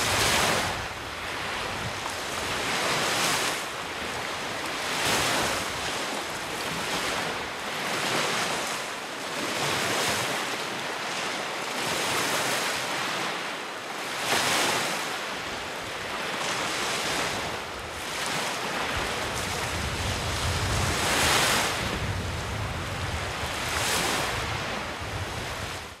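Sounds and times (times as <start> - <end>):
wind rumble on microphone: 0.0 - 8.6, 16.9 - 26.0
waves washing onto shore: 0.0 - 26.0.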